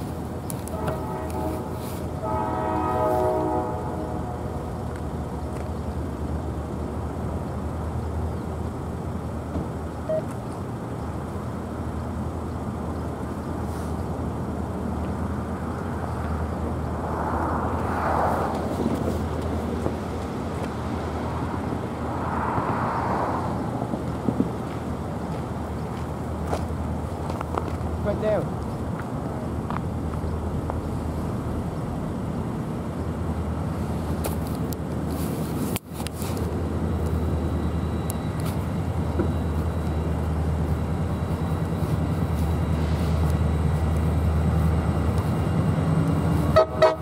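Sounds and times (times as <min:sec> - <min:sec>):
distant locomotive horn: 0:00.6 - 0:04.9, 0:46.4 - 0:47.0
rushing noise: 0:15.4 - 0:25.3.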